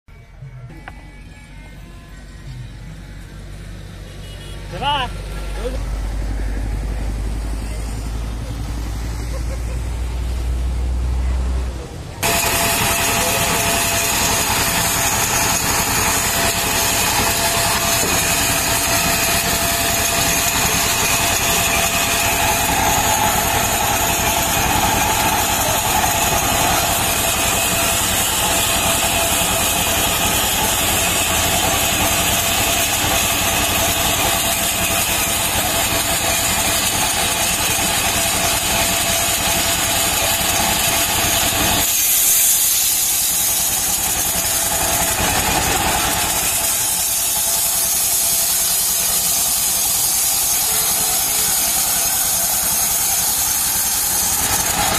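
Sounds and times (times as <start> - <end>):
small stationary engine running: 0.7 - 54.9
band saw cutting log: 2.4 - 11.6, 12.2 - 54.9
loud high hiss: 12.2 - 54.9.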